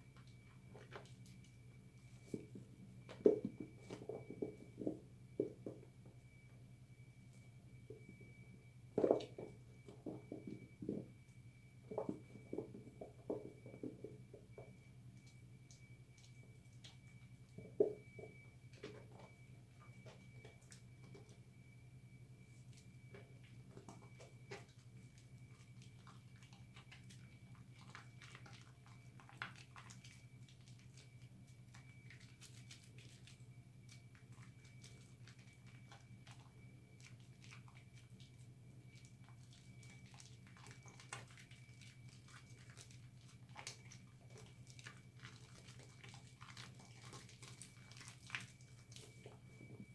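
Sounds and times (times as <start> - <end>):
soap lather squishing: 39.0 - 49.2.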